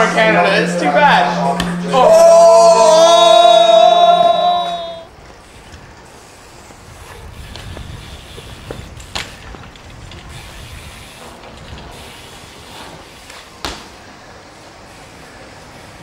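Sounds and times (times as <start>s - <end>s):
bike tyres rolling on pavement: 2.6s - 16.0s
bike landing knocks: 7.4s - 10.4s, 13.0s - 14.2s.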